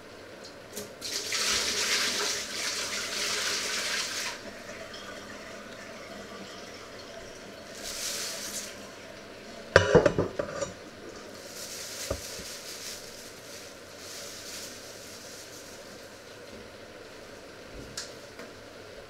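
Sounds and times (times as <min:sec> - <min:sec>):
metal pot and dishes clattering: 0:09.8 - 0:10.8.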